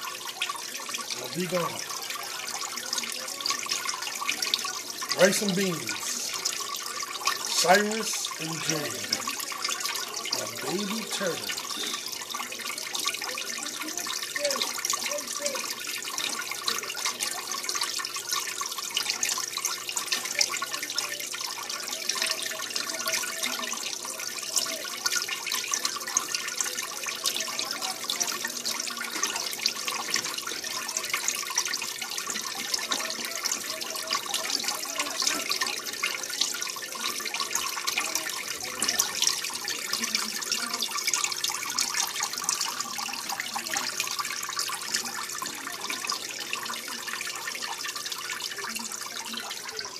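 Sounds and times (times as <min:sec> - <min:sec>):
water trickling and splashing: 0:00.0 - 0:49.9.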